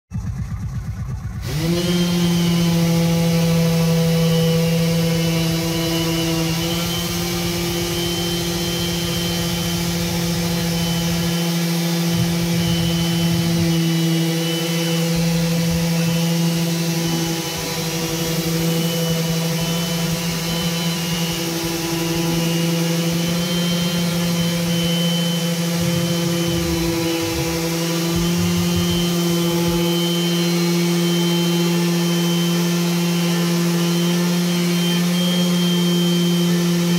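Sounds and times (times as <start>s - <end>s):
orbital sander on wood: 0.2s - 36.9s.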